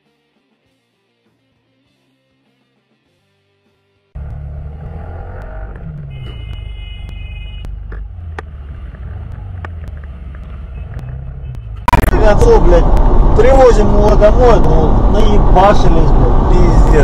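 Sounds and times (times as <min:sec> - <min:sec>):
street traffic: 0:04.1 - 0:17.0.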